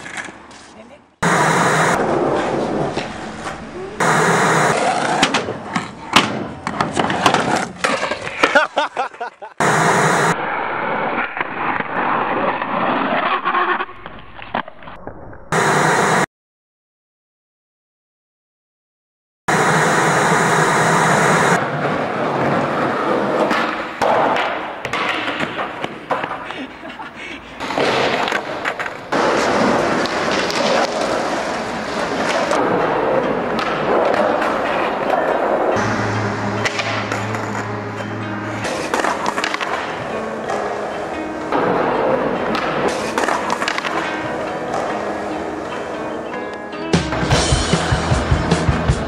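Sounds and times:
skateboard wheels rolling: 0:00.0 - 0:08.8, 0:10.0 - 0:15.7, 0:21.1 - 0:46.6
tv static hiss: 0:01.2 - 0:02.0, 0:04.0 - 0:05.1, 0:09.6 - 0:10.4, 0:19.5 - 0:21.6
skateboard clacks: 0:21.6 - 0:26.7, 0:27.6 - 0:35.8, 0:38.6 - 0:40.9, 0:41.5 - 0:45.2.

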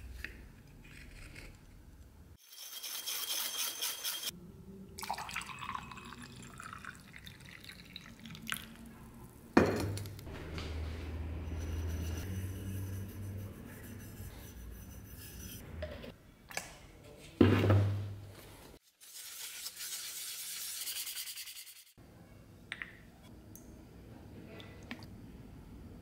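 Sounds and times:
hand tool scraping brass plate: 0:02.5 - 0:04.3.

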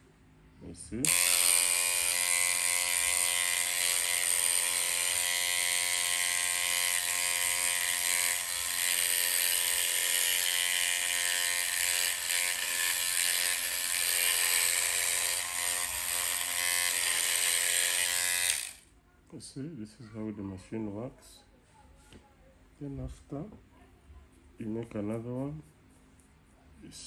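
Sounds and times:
hair machine motor humming: 0:01.0 - 0:18.8.

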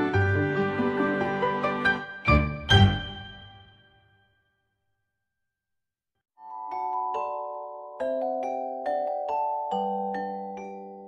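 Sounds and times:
background music with ringing notes: 0:00.0 - 0:04.3.

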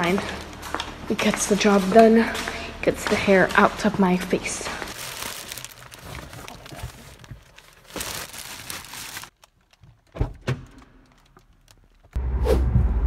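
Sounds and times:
bag rustling and handling noise: 0:04.7 - 0:10.1.

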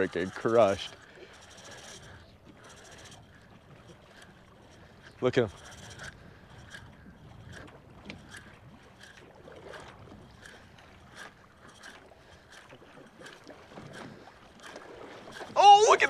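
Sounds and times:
small waves slapping boat hull: 0:00.0 - 0:16.0
low wind rumble: 0:01.8 - 0:12.9.

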